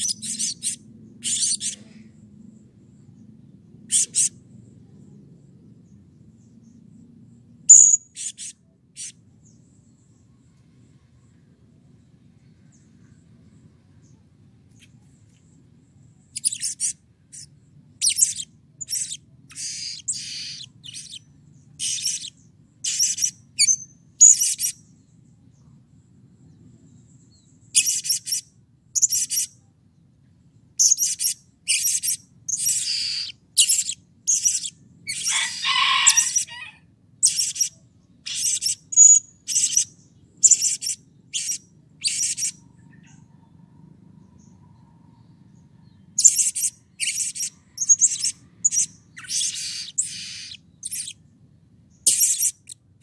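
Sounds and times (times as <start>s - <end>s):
parrot chirping: 0.0s - 1.8s, 3.9s - 4.4s, 7.7s - 9.2s, 16.3s - 24.8s, 27.8s - 29.6s, 30.8s - 36.6s, 37.2s - 43.1s, 46.2s - 51.2s, 52.0s - 52.8s.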